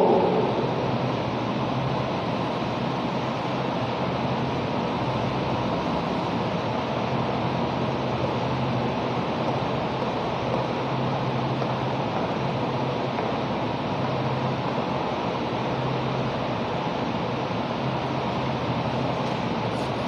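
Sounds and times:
low hum: 0:00.0 - 0:02.7.

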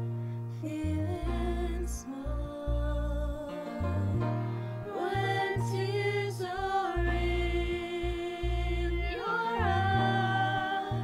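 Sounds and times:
low bass notes: 0:00.0 - 0:11.0
women singing together: 0:04.9 - 0:11.0.

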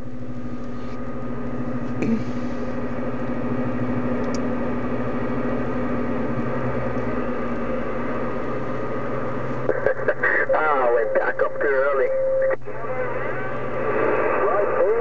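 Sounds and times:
low hum: 0:00.0 - 0:15.0
radio static: 0:09.6 - 0:15.0.

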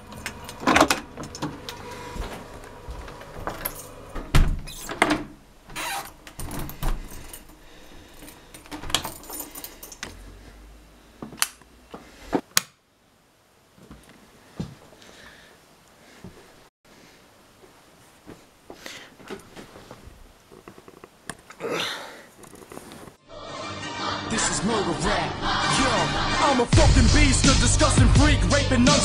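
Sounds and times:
keys jangling: 0:03.5 - 0:04.1, 0:06.4 - 0:10.2
rustling handling noise: 0:16.1 - 0:21.6, 0:22.3 - 0:23.2.

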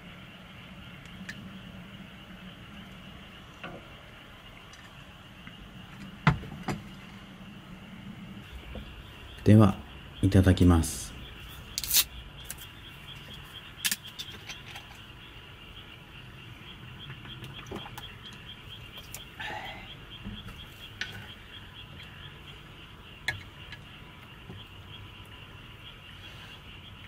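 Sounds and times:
insects chirping: 0:00.0 - 0:27.0.

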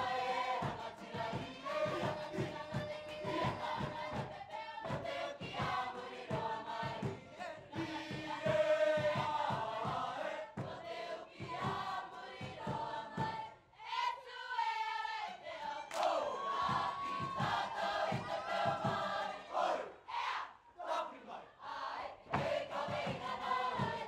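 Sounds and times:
mixed choir singing in harmony: 0:00.0 - 0:24.0.

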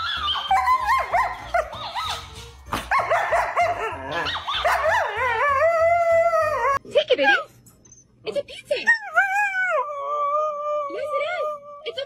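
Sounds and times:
background music with steady beat: 0:00.0 - 0:06.8
dog howling: 0:03.7 - 0:06.8.

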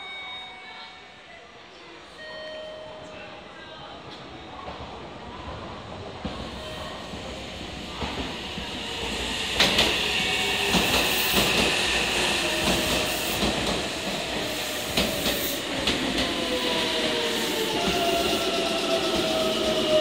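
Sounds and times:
electric train rumbling: 0:04.8 - 0:20.0.

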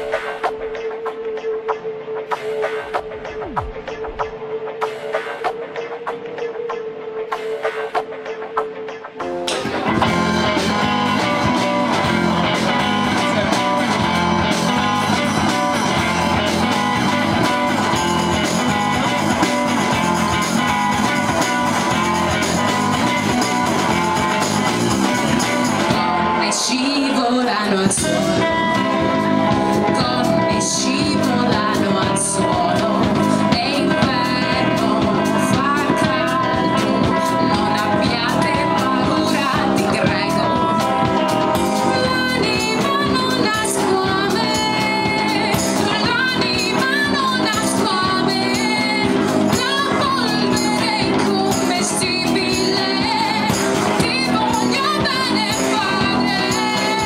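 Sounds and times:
drums: 0:00.0 - 0:57.0
electric guitar: 0:00.0 - 0:57.0
bass guitar: 0:08.8 - 0:57.0
woman singing: 0:25.8 - 0:57.0.

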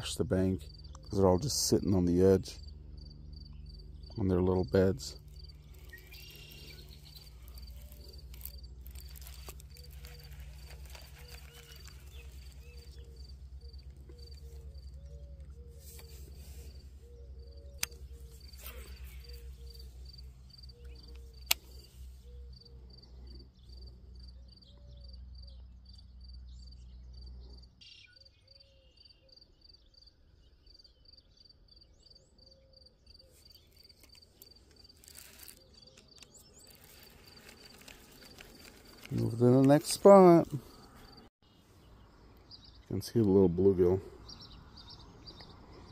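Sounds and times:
cricket chirping: 0:02.6 - 0:15.4, 0:16.0 - 0:39.2
sharp clicks: 0:17.8 - 0:19.4, 0:20.8 - 0:21.9.

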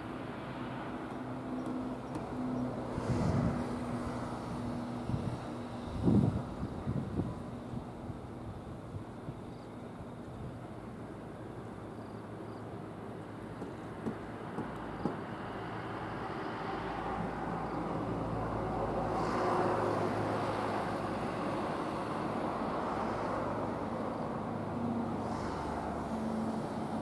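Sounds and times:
boat engine humming: 0:00.1 - 0:11.9.

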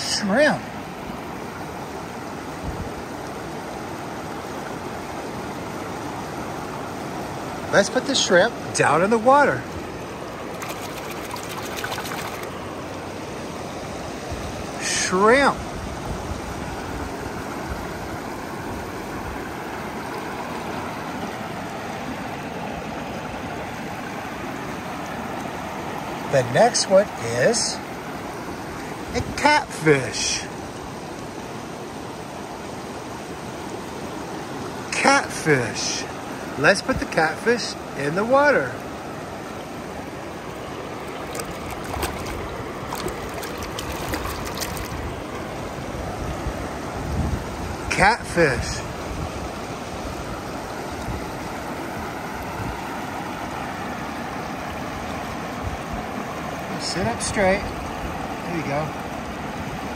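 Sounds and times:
river water rushing over rocks: 0:00.0 - 0:59.9
small splashes and drips: 0:10.5 - 0:12.6, 0:40.5 - 0:45.4.

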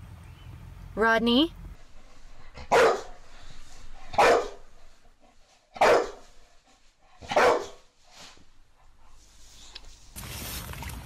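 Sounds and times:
dog barking: 0:02.6 - 0:03.2, 0:04.1 - 0:04.8, 0:05.7 - 0:06.4, 0:07.2 - 0:07.9.

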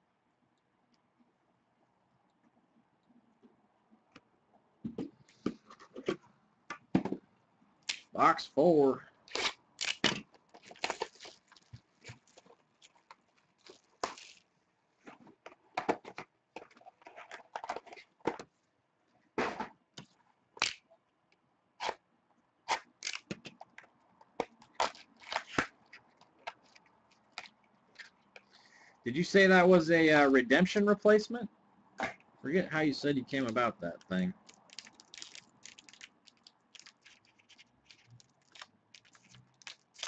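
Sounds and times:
packaging tearing: 0:09.3 - 0:14.4, 0:22.7 - 0:23.3, 0:34.4 - 0:40.0
packaging crinkling: 0:09.3 - 0:14.5, 0:34.4 - 0:40.0.

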